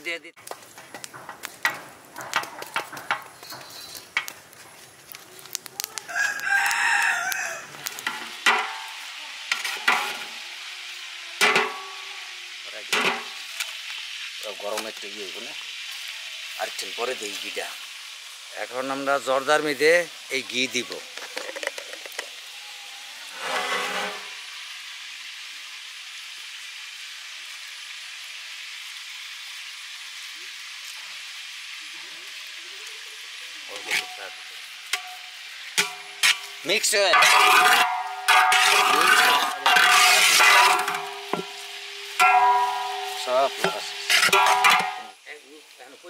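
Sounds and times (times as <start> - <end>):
rice sizzling in pot: 0.0 - 46.0
metal spatula scraping pot: 1.1 - 4.3, 8.0 - 10.4, 11.4 - 12.0, 23.2 - 24.4, 33.8 - 34.3, 35.8 - 45.2
rooster crowing: 6.0 - 7.8.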